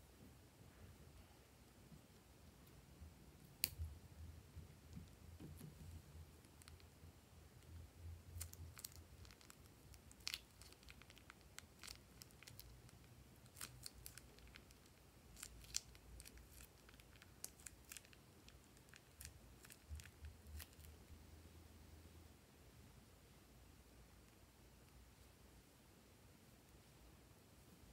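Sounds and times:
faint low hum: 0.0s - 27.9s
plastic piping bag crinkling: 5.4s - 7.0s, 7.6s - 21.0s.

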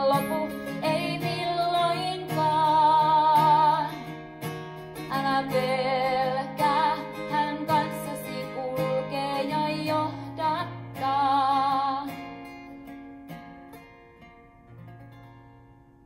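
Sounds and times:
woman singing: 0.0s - 4.2s, 5.0s - 12.4s
acoustic guitar: 0.0s - 16.0s.

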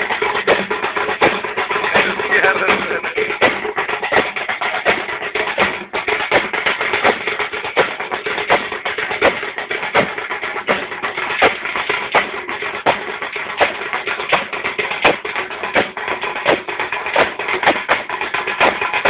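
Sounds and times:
procession music with drums: 0.0s - 19.0s
sharp drum strokes: 0.0s - 19.0s.

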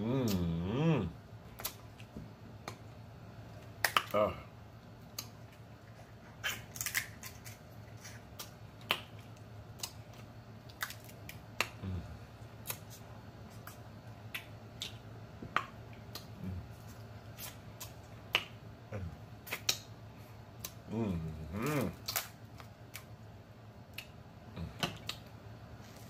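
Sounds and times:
low hums: 0.0s - 6.4s, 7.8s - 26.0s
crab shell cracking: 6.4s - 7.6s, 10.6s - 11.8s, 21.9s - 23.1s
wet mouth smacking: 19.4s - 19.9s.

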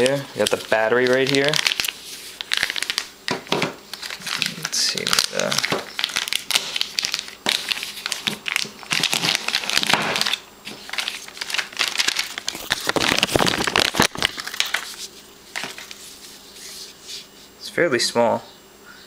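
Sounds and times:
plastic bag crinkling: 0.0s - 16.9s.

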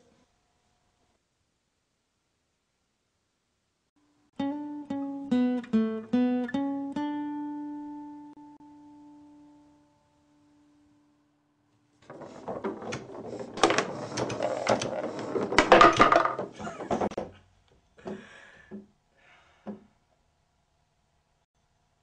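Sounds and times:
foosball knocks: 12.0s - 17.3s
foosball table clatter: 12.0s - 17.4s.

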